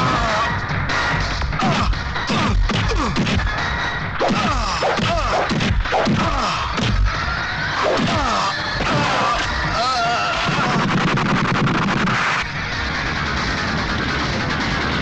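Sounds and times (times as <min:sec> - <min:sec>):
dramatic background score: 0:00.0 - 0:15.0
punch and kick whacks: 0:01.6 - 0:03.5, 0:04.2 - 0:07.1, 0:07.8 - 0:09.2.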